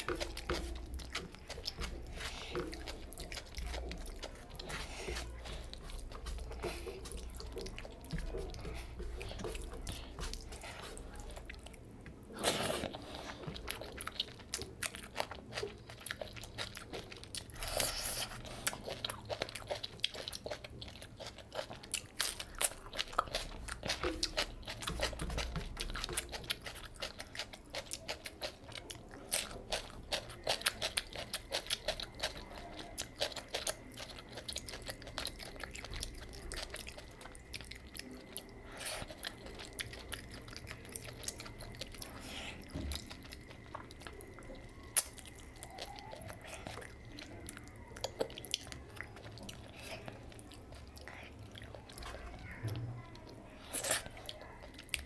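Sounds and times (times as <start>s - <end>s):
person chewing wetly: 0.0s - 55.0s.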